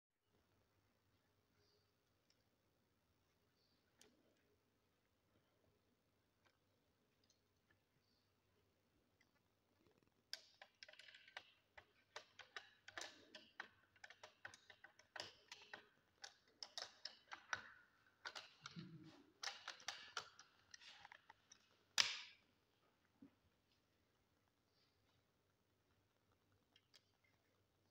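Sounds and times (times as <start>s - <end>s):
rifle parts clicking and rattling: 19.4s - 22.4s.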